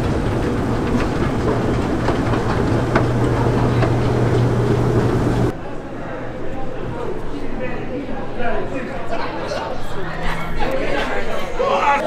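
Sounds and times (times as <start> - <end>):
escalator hum and rattle: 0.0 - 5.5
escalator steps clicking: 0.0 - 5.5.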